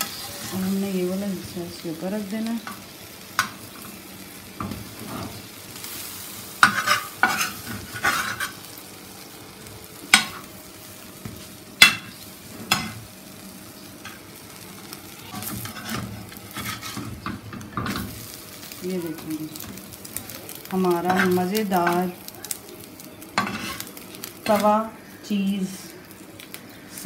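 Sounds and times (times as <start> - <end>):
sandwich sizzling on a griddle: 0.0 - 27.0
metal spatula scraping and tapping pan: 6.6 - 8.6, 10.1 - 10.5, 11.8 - 13.0, 15.3 - 18.1, 21.0 - 22.0, 23.4 - 24.7.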